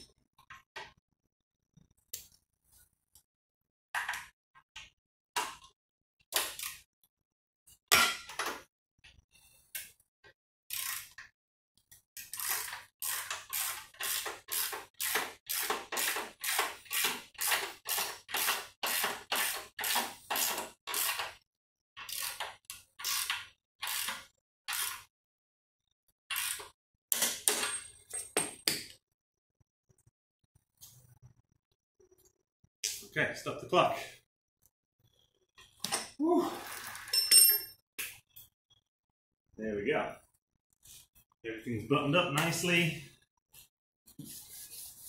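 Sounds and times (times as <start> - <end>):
ratchet wrench ratcheting: 10.7 - 11.2, 12.3 - 21.4, 22.0 - 25.0.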